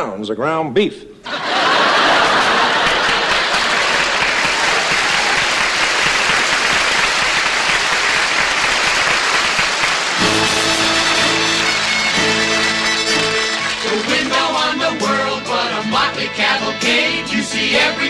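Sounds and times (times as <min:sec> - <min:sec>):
audience applauding: 0:01.4 - 0:15.4
band playing musical transition: 0:10.2 - 0:16.2.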